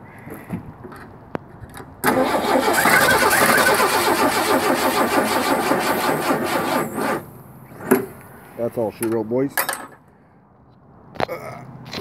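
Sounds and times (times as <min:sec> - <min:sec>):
starter cranking engine: 0:02.0 - 0:07.3.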